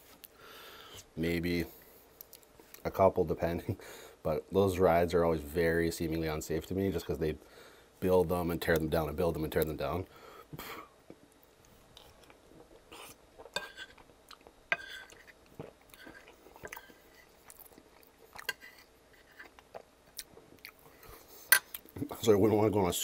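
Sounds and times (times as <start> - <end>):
fork scraping plate: 13.0 - 14.0, 14.7 - 17.4, 18.4 - 19.6.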